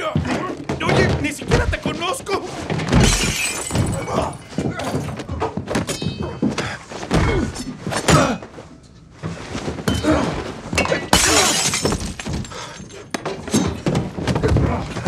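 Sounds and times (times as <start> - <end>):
glass shattering: 2.9 - 5.1, 10.8 - 13.8.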